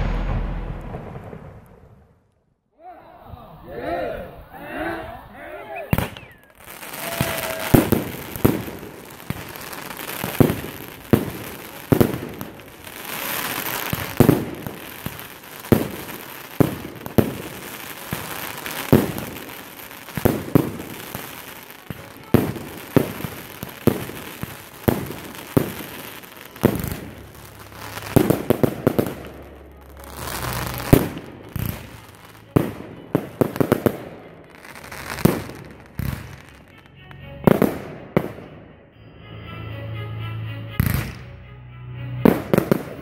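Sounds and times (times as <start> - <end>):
fireworks bursting with bangs: 0.0 - 2.2, 5.9 - 36.8, 37.4 - 38.6, 42.2 - 43.0
fireworks hissing and crackling: 5.9 - 36.8.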